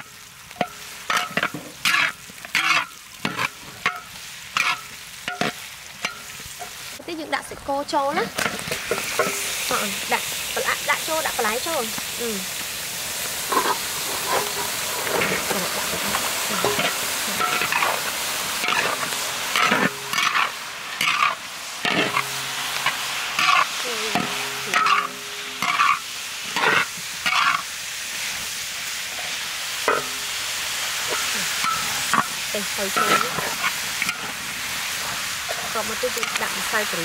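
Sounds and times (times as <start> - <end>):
metal spatula scraping wok: 0.0 - 7.0, 8.0 - 12.0, 13.2 - 37.0
frying sizzle: 0.0 - 37.0.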